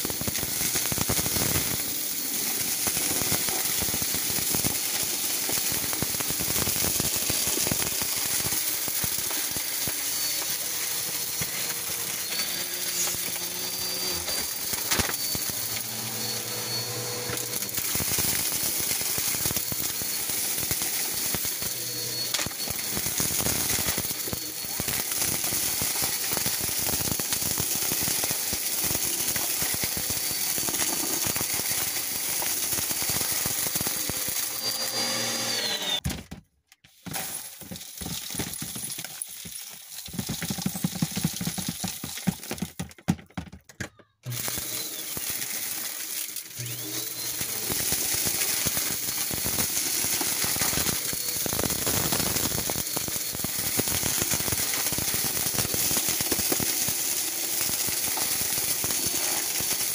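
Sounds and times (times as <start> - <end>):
glitter clattering through vacuum: 0.0 - 34.6, 44.3 - 59.9
vacuum cleaner whining: 0.0 - 36.1, 37.0 - 42.6, 43.3 - 59.9
beads rattling into plastic tub: 0.6 - 34.1, 36.9 - 43.7.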